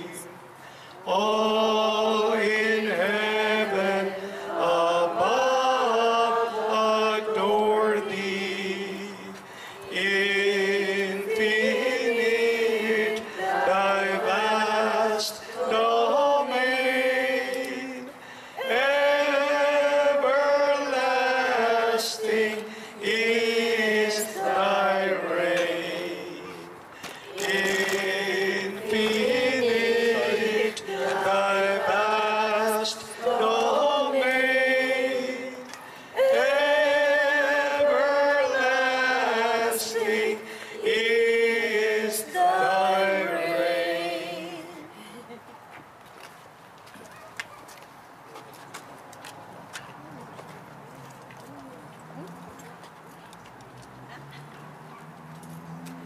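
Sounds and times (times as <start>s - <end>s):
liturgical chant into microphone: 0.0s - 45.0s
singer breathing: 0.6s - 1.0s, 9.4s - 9.9s, 18.1s - 18.6s, 22.6s - 23.0s, 26.9s - 27.4s, 35.8s - 36.2s, 40.4s - 40.8s.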